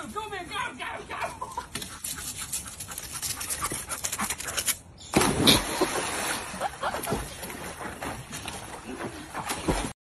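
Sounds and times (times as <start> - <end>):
loud splash into pool: 5.1 - 7.3.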